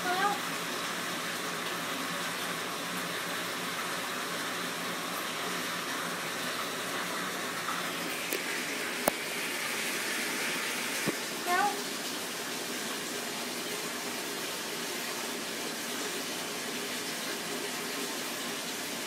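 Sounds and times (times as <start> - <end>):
shower water falling: 0.0 - 19.0.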